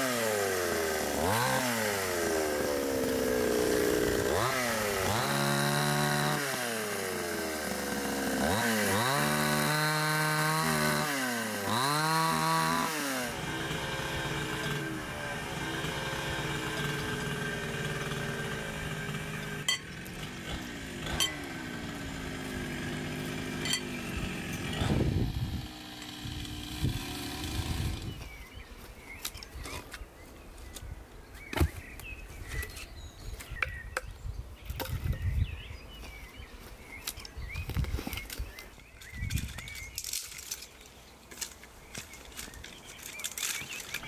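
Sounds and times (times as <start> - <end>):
chainsaw running: 0.0 - 29.9, 37.1 - 44.0
birds chirping: 15.4 - 44.0
branches and logs knocking: 31.5 - 32.7, 37.0 - 44.0.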